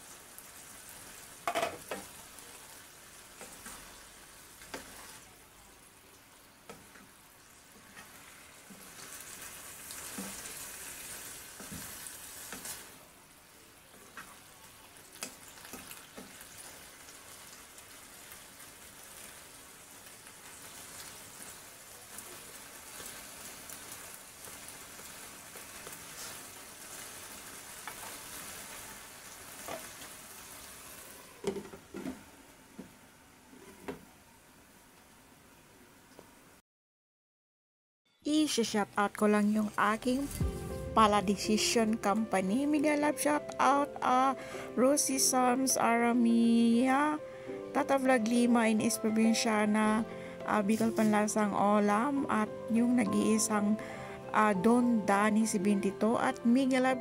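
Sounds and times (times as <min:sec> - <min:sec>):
vegetables sizzling in a frying pan: 0:00.0 - 0:36.6, 0:38.3 - 0:56.8
wooden spatula scraping: 0:07.8 - 0:13.0, 0:25.7 - 0:27.2.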